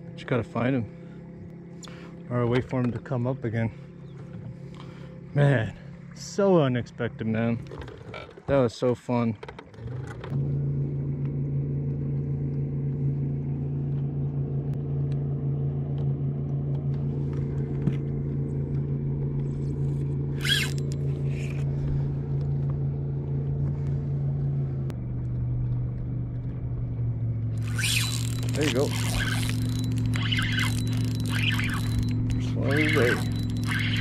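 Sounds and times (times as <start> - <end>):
electric motor humming: 20.2 - 21.7, 27.5 - 34.0.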